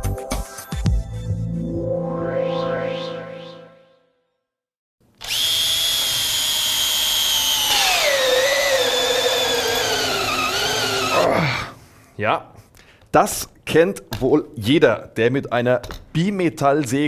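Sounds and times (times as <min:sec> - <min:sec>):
cordless drill whining: 0:05.2 - 0:11.6.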